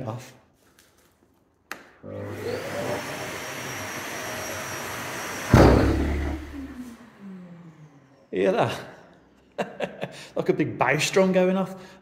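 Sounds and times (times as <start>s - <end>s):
vacuum motor running: 2.0s - 8.3s
loud thud of filter clean: 5.5s - 6.5s.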